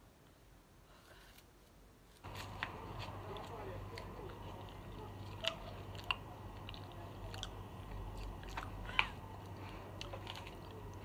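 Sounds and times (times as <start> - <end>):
person chewing: 2.2 - 11.0.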